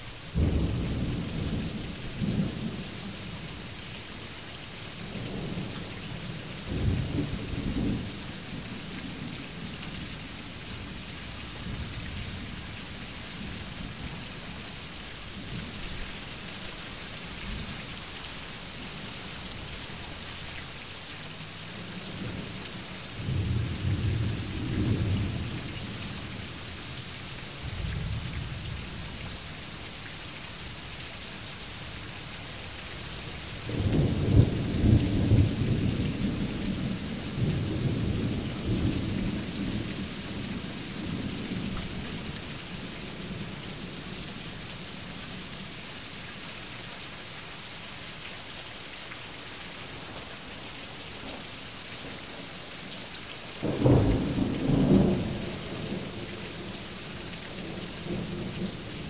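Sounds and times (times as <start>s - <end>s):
steady rain falling: 0.0s - 59.0s
thunder rumbling: 53.6s - 56.1s.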